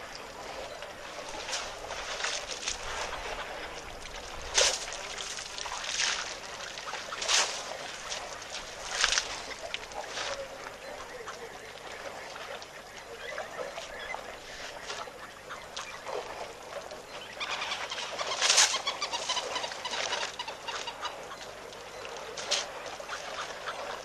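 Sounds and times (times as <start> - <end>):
water and mud splashing: 0.0 - 24.0.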